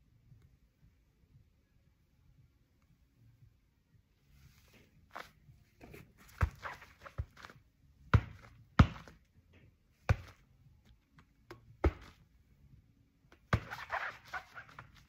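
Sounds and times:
ball thudding into gloves: 5.9s - 9.3s, 10.0s - 10.5s, 11.2s - 12.3s, 13.3s - 14.9s.

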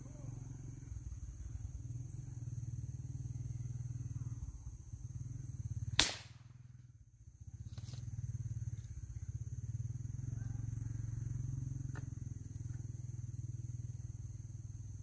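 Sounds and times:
steady low hum: 0.0s - 15.0s
air rifle shot: 6.0s - 6.5s.

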